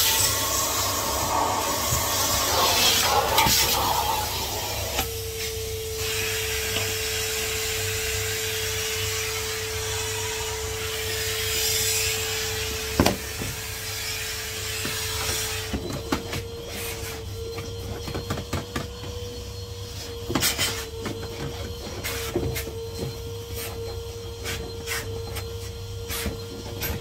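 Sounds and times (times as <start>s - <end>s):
hose rubbing on floor: 0.0s - 5.0s
vacuum cleaner running: 0.0s - 27.0s.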